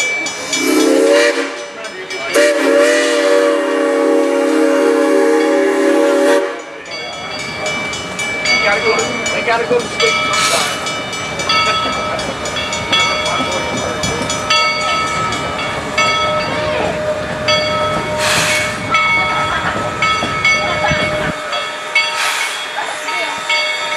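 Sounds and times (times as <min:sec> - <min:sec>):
steam locomotive: 0:00.0 - 0:23.9
sharp hisses of steam: 0:00.2 - 0:08.2, 0:09.2 - 0:11.2, 0:15.1 - 0:19.0, 0:21.0 - 0:23.9
bell ringing: 0:06.6 - 0:23.9.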